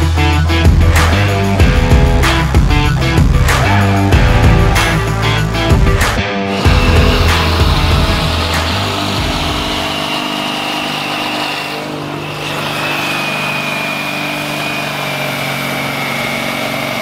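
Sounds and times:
tractor diesel engine under load: 0:06.5 - 0:17.0.

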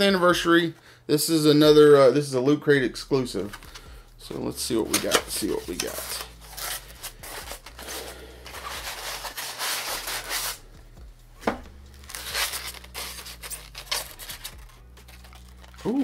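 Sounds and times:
cardboard box rubbing and tearing: 0:05.4 - 0:10.7, 0:12.0 - 0:16.0.

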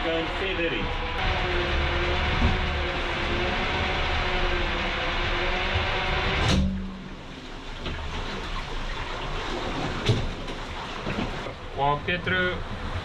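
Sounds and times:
propeller whirring hum: 0:00.0 - 0:07.9
quiet water rush: 0:00.0 - 0:13.0
clunk: 0:06.4 - 0:07.1.

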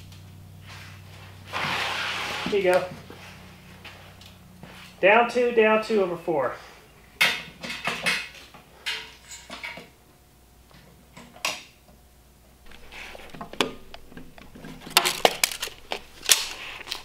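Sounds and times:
short scrapes on plywood: 0:01.5 - 0:03.3.

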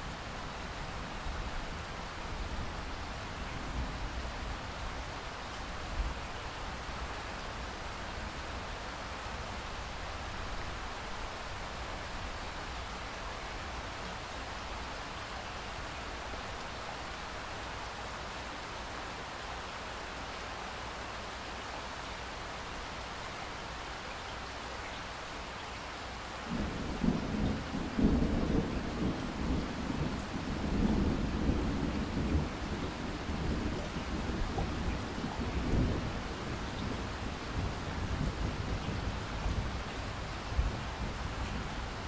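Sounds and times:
rain hiss: 0:00.0 - 0:42.0
rolling thunder rumble: 0:26.5 - 0:39.8.

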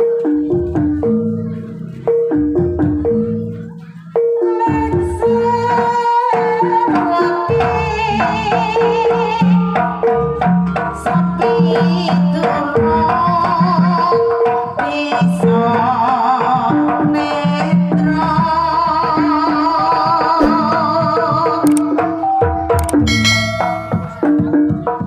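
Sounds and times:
woman singing with vibrato: 0:04.5 - 0:09.8, 0:11.1 - 0:21.7
large hanging gong: 0:23.1 - 0:24.4
ringing pot gong notes: 0:23.1 - 0:24.5.

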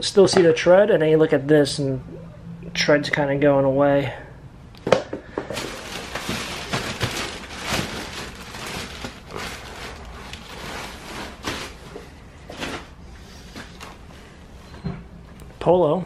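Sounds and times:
plastic trash bags crinkling: 0:05.3 - 0:13.0.

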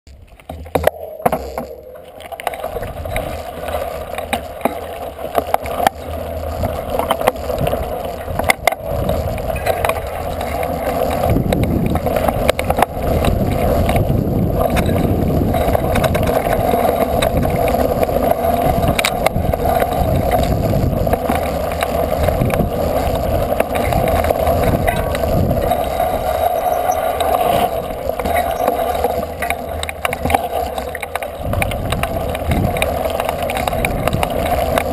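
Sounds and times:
bumpy trail rumble: 0:00.1 - 0:34.9
sharp knocks from rough ground: 0:00.4 - 0:01.8
wind rush: 0:10.8 - 0:21.2, 0:22.1 - 0:28.0, 0:31.4 - 0:32.8.

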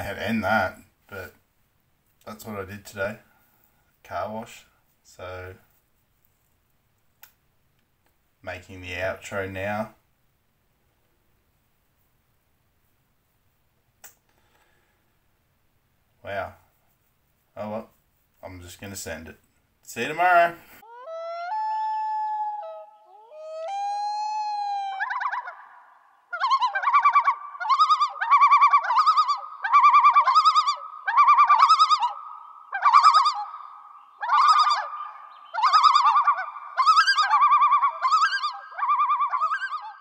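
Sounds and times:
high bird-like whistling: 0:20.8 - 0:40.0.

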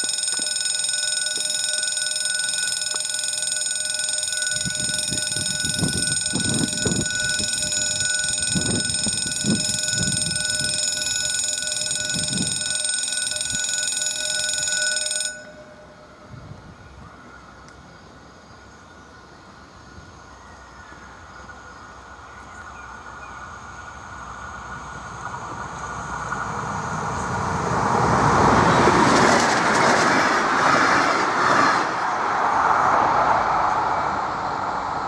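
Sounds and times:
level crossing warning bell: 0:00.0 - 0:16.7.

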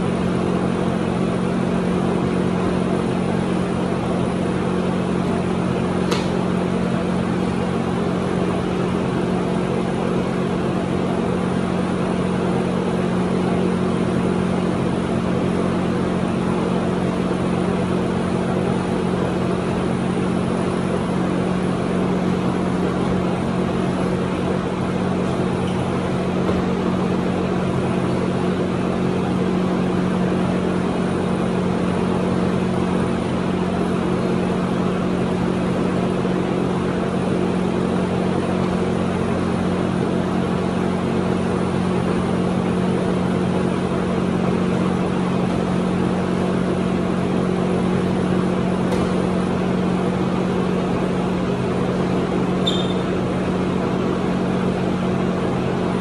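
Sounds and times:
sharp click: 0:06.1 - 0:06.4.

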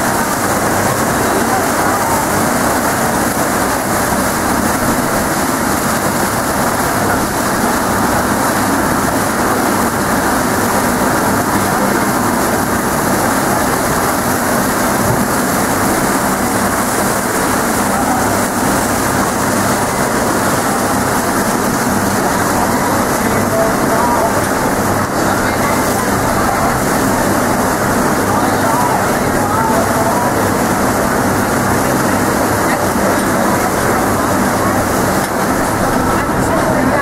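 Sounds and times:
churning wake water: 0:00.0 - 0:37.0.

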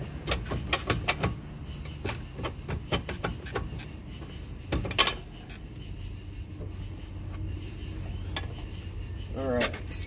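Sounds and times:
metal clunks and knocks: 0:00.0 - 0:05.7.

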